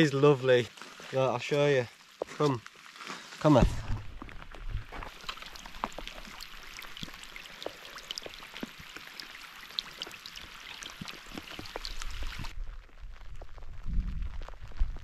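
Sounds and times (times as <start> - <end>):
heavy rain splashing on water: 3.4 - 15.0.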